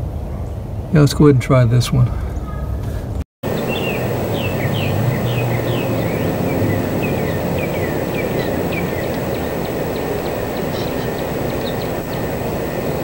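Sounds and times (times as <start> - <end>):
low outdoor rumble: 2.2 - 13.0
bird whistling downward notes: 3.5 - 13.0.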